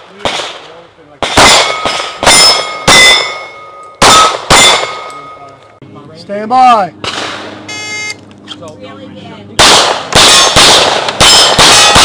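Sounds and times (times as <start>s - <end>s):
rapid handgun shots: 0.0s - 3.4s, 4.0s - 5.0s, 9.6s - 12.0s
steel plates ringing: 1.5s - 4.0s.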